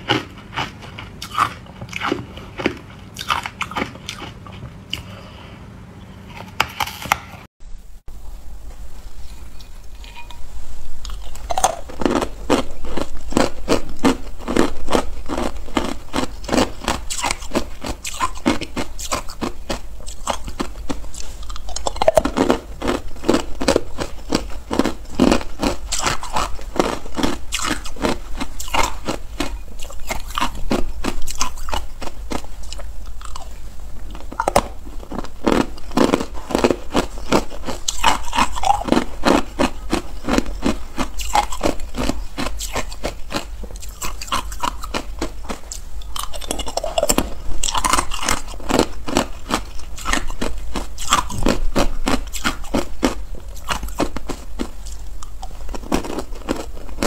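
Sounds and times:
ice cubes crunching: 34.4s - 57.0s.

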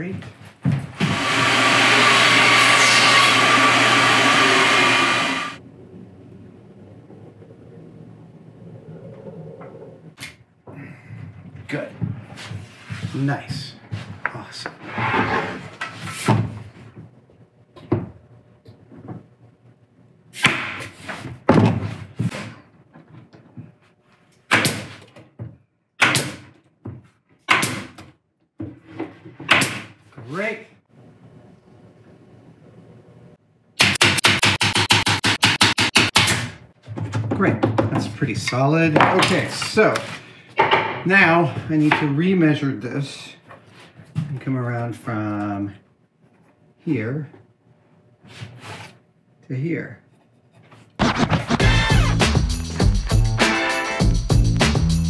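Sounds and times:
low hum: 5.4s - 10.2s
nail gun firing: 26.0s - 26.5s, 27.5s - 28.0s, 33.8s - 36.6s.

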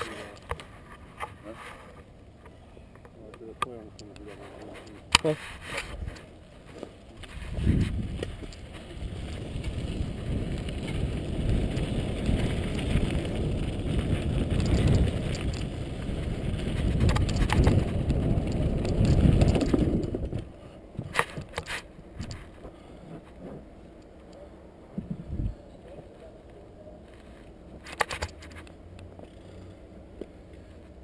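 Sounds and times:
wind rumbling on microphone: 0.0s - 31.0s
bicycle rattling: 3.7s - 24.4s.

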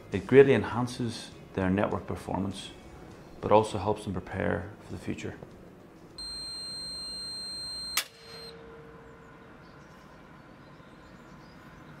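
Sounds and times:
high electronic beep: 6.2s - 8.6s
sharp click: 7.9s - 8.5s.

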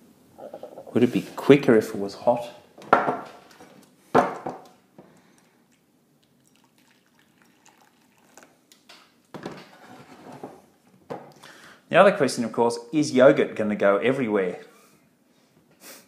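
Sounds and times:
knocks on wooden table: 2.9s - 3.2s
water pouring from kettle: 6.2s - 8.6s.

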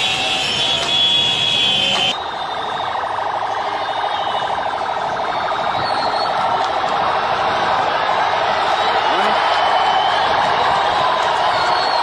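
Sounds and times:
siren high steady tone: 0.0s - 6.6s
rapid pulsing siren: 0.0s - 12.0s.

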